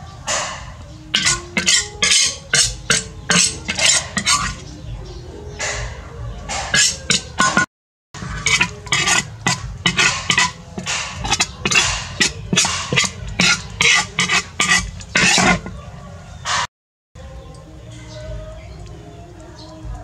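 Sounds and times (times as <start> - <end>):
metal spoon scraping a wok: 0.5 - 4.8, 6.5 - 15.8.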